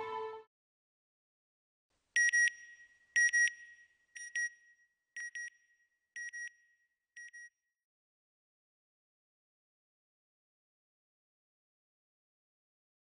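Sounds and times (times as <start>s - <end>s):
background music: 0.0s - 0.5s.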